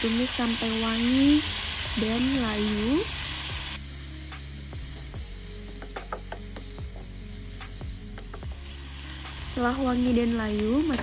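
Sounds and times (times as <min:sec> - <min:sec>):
shallots and garlic sizzling in pan: 0:00.0 - 0:11.0
wooden spatula tapping pan: 0:05.7 - 0:07.0.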